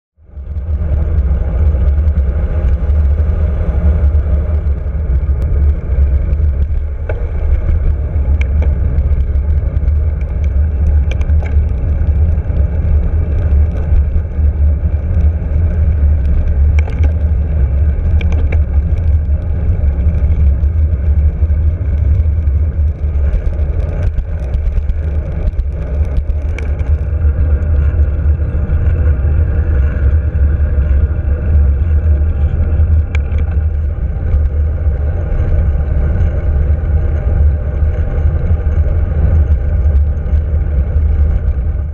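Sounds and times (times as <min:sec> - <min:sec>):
wind buffeting microphone: 0:00.3 - 0:41.9
handlebar clicks and rattles: 0:03.8 - 0:30.1, 0:31.8 - 0:36.5.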